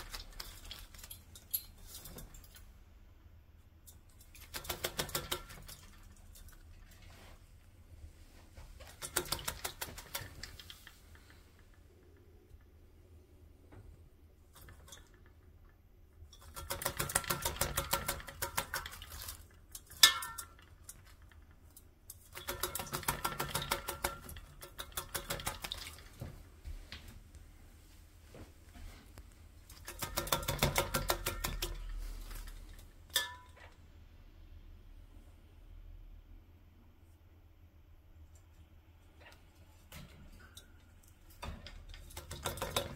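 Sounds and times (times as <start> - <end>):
bird splashing in water bowl: 4.2 - 7.0, 22.3 - 26.2.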